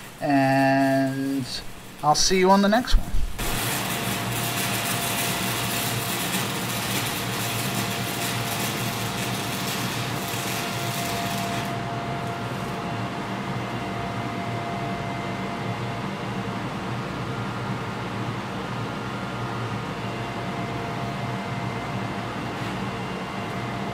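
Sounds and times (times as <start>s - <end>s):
welding arc crackling and hissing: 0.0s - 13.4s
exhaust fan humming: 0.0s - 23.9s.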